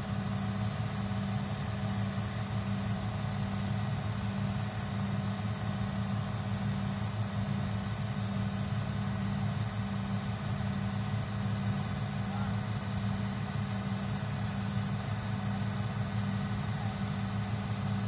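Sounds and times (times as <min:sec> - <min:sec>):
diesel engine drone: 0:00.0 - 0:18.0.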